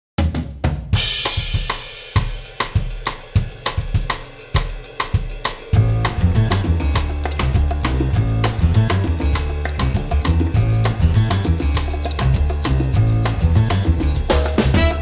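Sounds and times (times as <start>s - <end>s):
drum kit groove: 0.2s - 15.0s
bass line: 5.8s - 15.0s.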